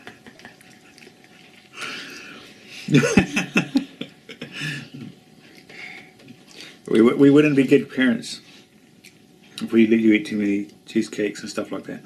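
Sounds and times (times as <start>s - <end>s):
breathy murmuring voices: 0.0s - 6.9s.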